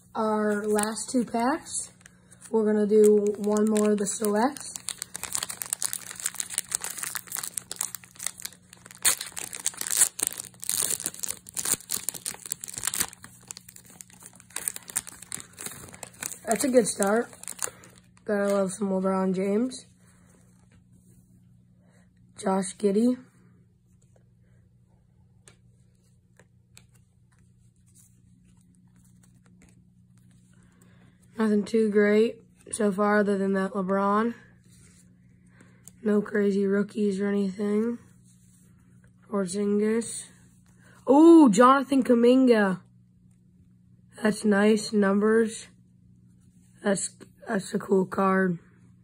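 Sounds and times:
low steady hum: 0:00.0 - 0:49.0
plastic wrapper crinkling and tearing: 0:01.9 - 0:18.7.

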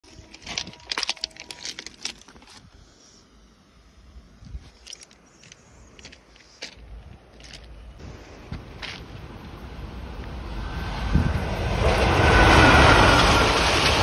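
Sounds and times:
footsteps crunching on stones: 0:00.1 - 0:02.7, 0:04.5 - 0:07.8, 0:08.5 - 0:09.1.

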